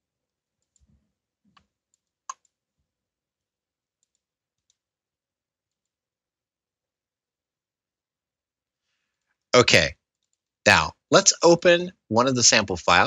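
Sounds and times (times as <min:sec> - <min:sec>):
computer mouse clicks: 0:01.5 - 0:02.6, 0:04.0 - 0:04.8.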